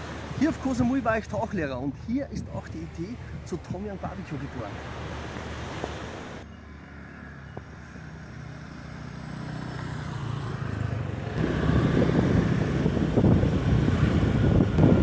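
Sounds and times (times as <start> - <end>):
road noise: 0.0 - 15.0
motor scooter engine rumble: 5.8 - 15.0.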